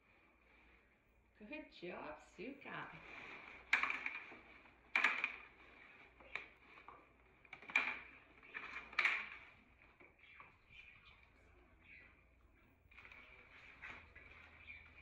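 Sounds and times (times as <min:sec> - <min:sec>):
packing paper crackling and rustling: 0:02.9 - 0:10.2.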